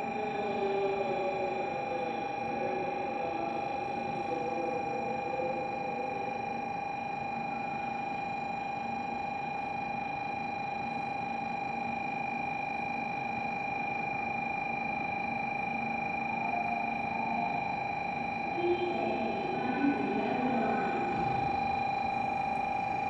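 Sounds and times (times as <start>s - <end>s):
platform ambience hum: 0.0s - 8.2s, 12.6s - 23.0s
steady electrical whine: 0.0s - 23.0s
faint voices: 18.5s - 21.5s.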